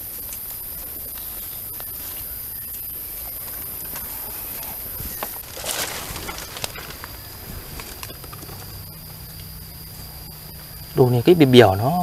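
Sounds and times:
leaf litter rustling: 0.0s - 10.3s
high-pitched insect drone: 0.0s - 12.0s
twigs snapping underfoot: 5.0s - 9.5s.

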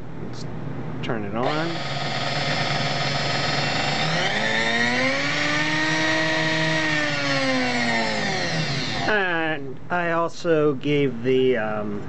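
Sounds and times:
hand mixer motor whining: 1.4s - 9.2s
higher whine sagging in pitch: 1.4s - 9.7s.

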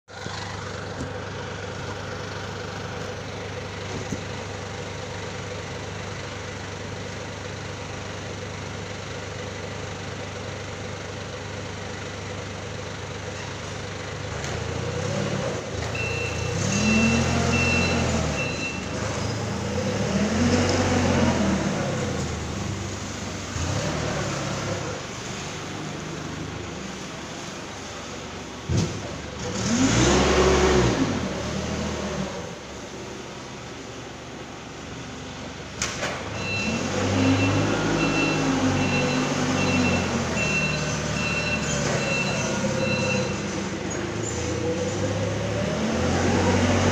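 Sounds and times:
forklift engine revving: 14.0s - 46.9s
high-pitched beep: 16.0s - 18.9s, 36.4s - 43.4s.

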